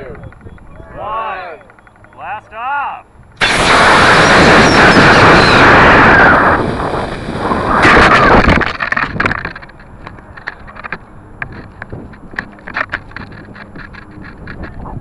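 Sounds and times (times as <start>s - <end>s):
air rushing past camera: 3.3s - 9.3s
rocket motor thrust rushing: 3.4s - 8.8s
light rattles and clicks: 8.6s - 15.0s.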